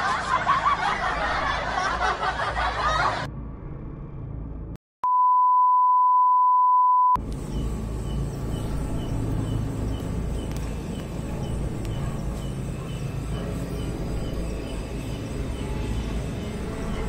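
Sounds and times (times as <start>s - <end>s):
low rumbling noise: 0.1s - 4.8s, 7.2s - 17.0s
test-tone beep: 5.0s - 7.2s.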